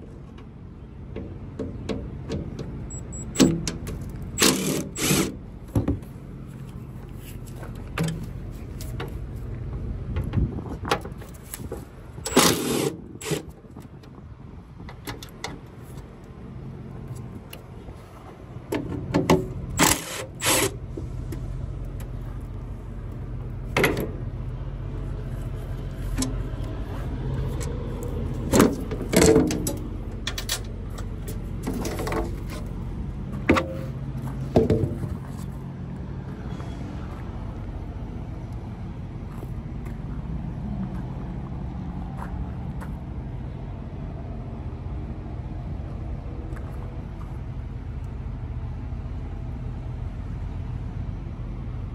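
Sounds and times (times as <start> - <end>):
engine running: 0.0 - 51.9
sharp knocks and clatters: 34.5 - 35.2.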